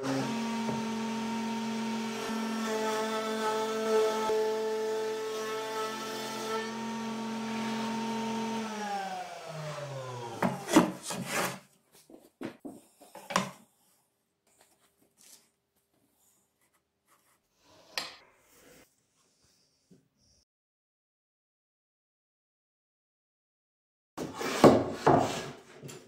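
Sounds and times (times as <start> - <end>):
wood router running: 0.0 - 10.8.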